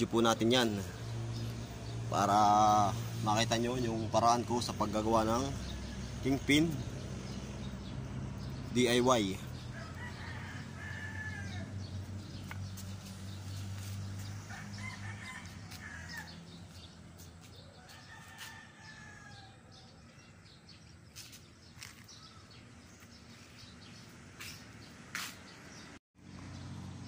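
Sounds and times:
rooster crowing faintly: 17.7s - 20.0s.

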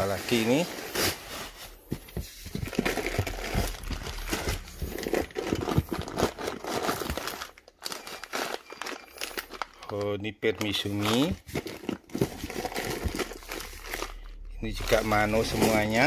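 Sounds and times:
paper and plastic bag rustling: 0.0s - 16.0s.

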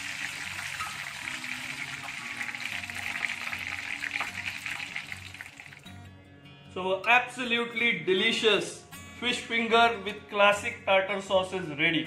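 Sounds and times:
hot oil sizzling and crackling: 0.0s - 5.9s
background music: 0.0s - 12.0s.

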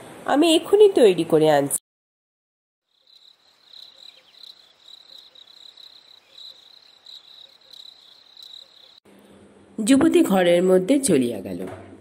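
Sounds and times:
crickets chirping: 2.8s - 9.0s.

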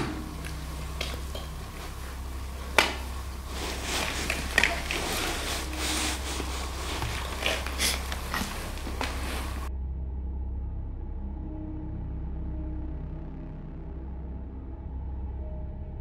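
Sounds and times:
crackling and rustling: 0.0s - 9.7s
steady low hum: 0.0s - 16.0s.

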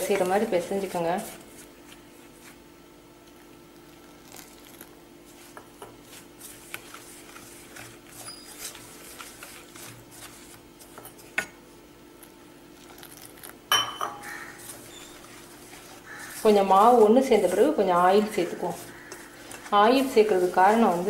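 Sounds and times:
faint steady hum: 0.0s - 21.0s
hands squishing dough: 3.2s - 11.4s, 14.2s - 21.0s.

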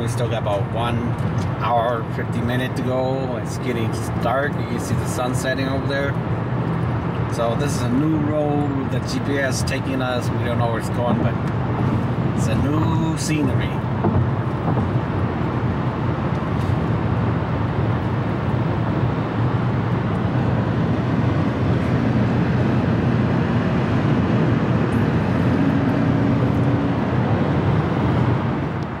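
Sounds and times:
car engine hum: 0.0s - 29.0s.

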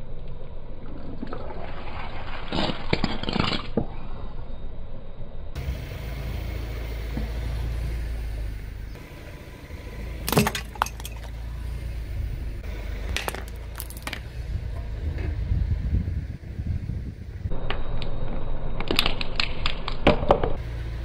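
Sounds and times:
brittle objects cracking: 2.5s - 3.8s, 13.2s - 14.3s
car tyre rolling over brick paving: 9.8s - 16.6s.

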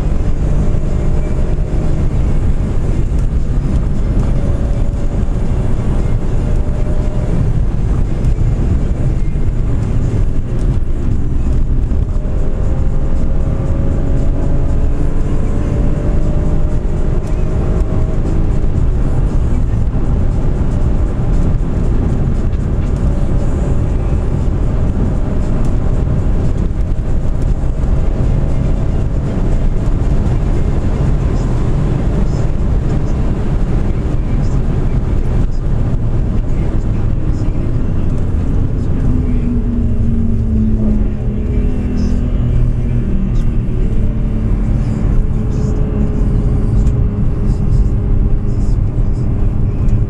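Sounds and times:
car engine tone: 0.0s - 50.0s
tyre and road rumble: 0.0s - 50.0s.

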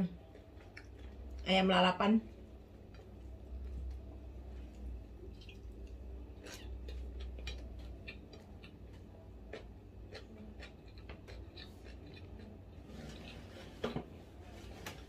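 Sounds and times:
low steady hum: 0.0s - 15.0s
chewing clicks and smacks: 0.2s - 1.4s, 5.3s - 12.6s.

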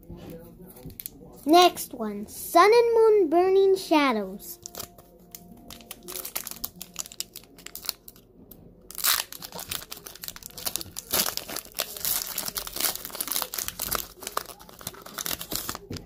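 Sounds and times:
foil wrapper crinkling and tearing: 4.6s - 8.2s, 8.9s - 16.0s.

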